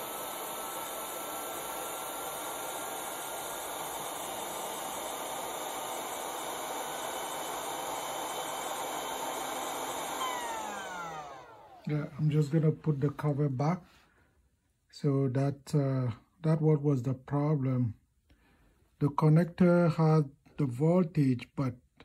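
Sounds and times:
faint motor whine: 0.0 - 13.3
fan blowing air: 0.0 - 13.6.

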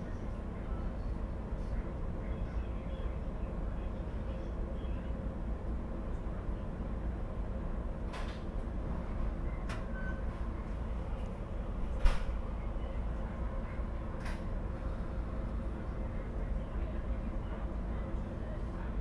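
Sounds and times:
train car rumbling: 0.0 - 19.0.

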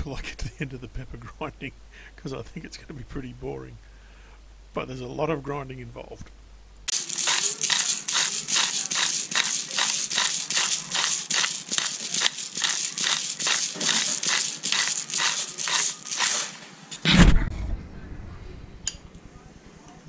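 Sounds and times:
pepper mill grinding: 6.9 - 17.0
loud thump: 17.0 - 17.8.

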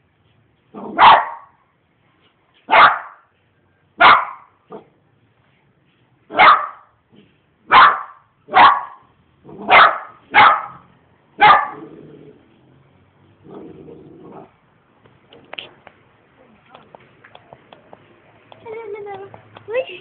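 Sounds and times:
dog barking: 0.8 - 1.6, 2.7 - 3.3, 4.0 - 4.9, 6.3 - 6.9, 7.7 - 11.9.

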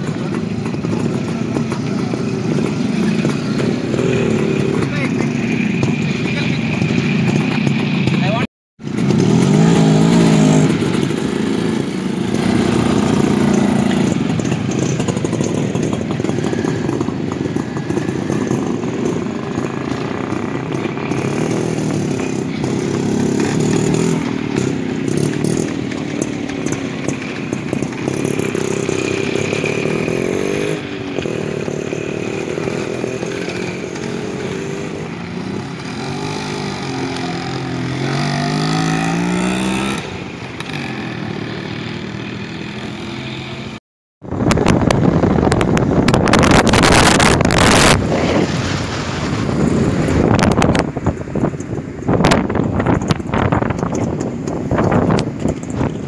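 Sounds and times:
two-stroke motorcycles revving: 0.0 - 56.0.

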